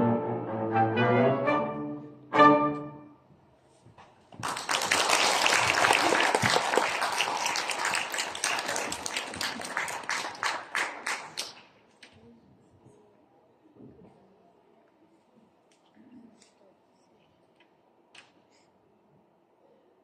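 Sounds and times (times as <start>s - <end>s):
cello and wind ensemble chord: 0.0s - 3.1s
audience applause: 4.4s - 11.6s.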